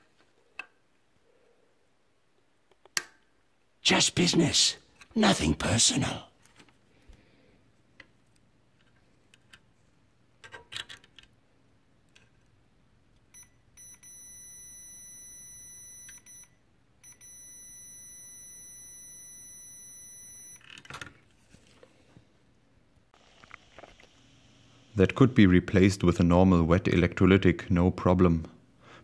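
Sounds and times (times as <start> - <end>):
multimeter high beep: 13.3 - 20.6.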